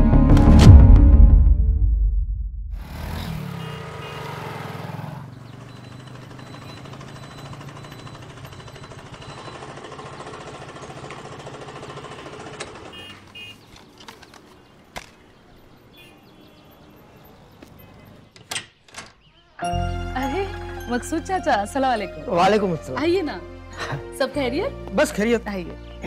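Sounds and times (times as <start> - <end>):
road noise: 2.7 - 26.0
scooters and motorcycles passing: 2.8 - 18.3.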